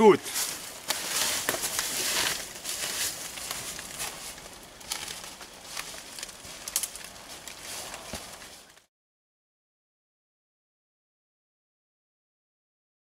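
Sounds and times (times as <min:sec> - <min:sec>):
footsteps crunching dry leaves: 0:00.0 - 0:08.9.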